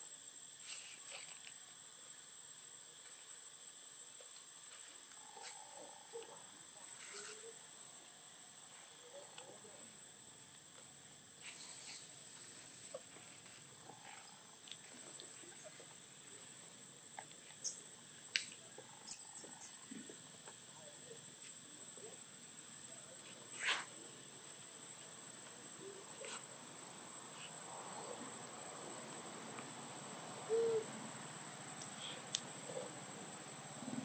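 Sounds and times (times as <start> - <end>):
insects whining: 0.0 - 34.0
low hoot-like call: 30.4 - 31.0.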